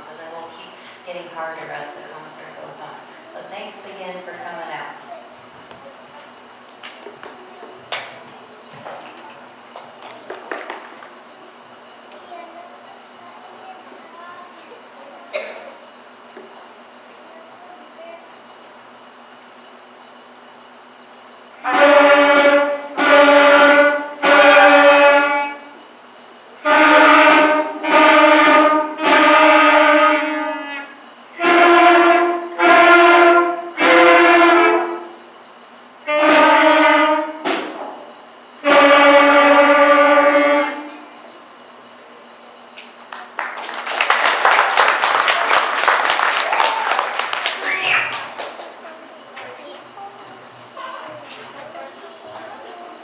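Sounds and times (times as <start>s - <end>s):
school band of clarinets and saxophones: 21.6s - 25.8s, 26.6s - 35.2s, 36.0s - 37.6s, 38.6s - 41.1s, 45.2s - 48.3s
applause: 43.0s - 48.8s.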